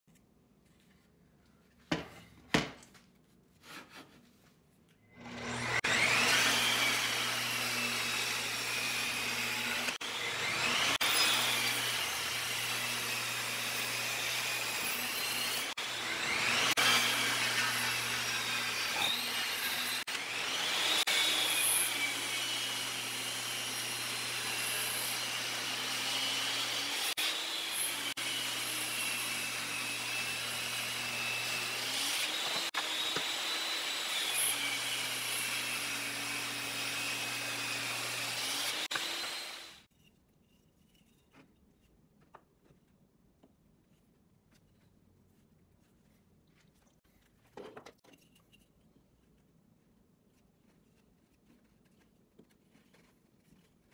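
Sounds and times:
table saw cutting wood: 0:05.1 - 0:39.9.

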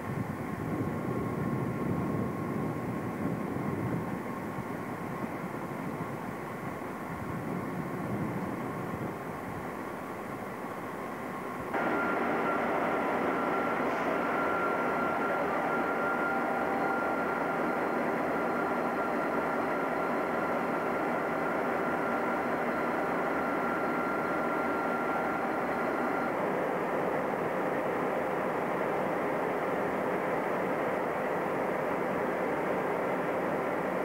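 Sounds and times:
diesel locomotive engine running: 0:00.0 - 0:34.0
high whine: 0:00.8 - 0:26.5.

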